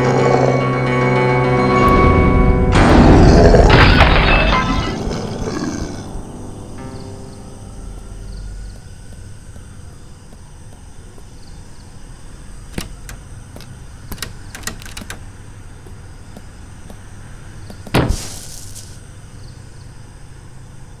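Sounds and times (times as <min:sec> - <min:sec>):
door latch clicking and rattling: 0:12.7 - 0:15.4.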